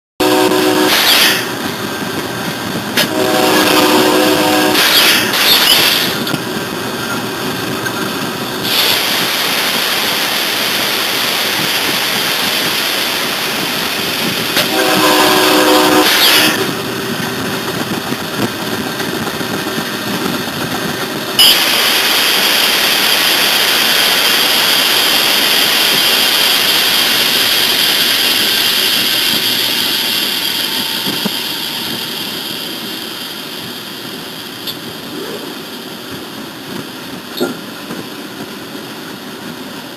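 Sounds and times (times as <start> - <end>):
train horn blast: 0.2 - 1.6, 3.0 - 5.4, 14.6 - 16.8
locomotive cab noise: 0.2 - 39.9
loud hiss: 0.3 - 6.6, 8.4 - 17.2, 21.3 - 36.2.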